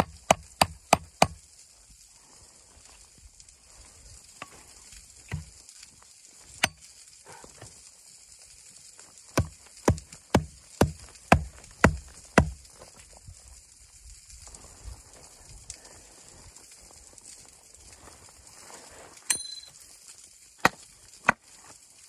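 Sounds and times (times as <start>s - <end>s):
hatchet chopping wood: 0.0s - 1.4s, 5.3s - 5.6s, 6.6s - 6.8s, 9.3s - 12.6s, 20.6s - 21.4s.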